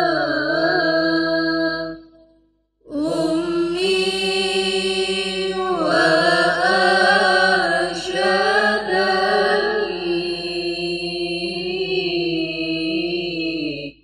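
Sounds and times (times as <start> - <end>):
women chanting in chorus: 2.9 - 14.0.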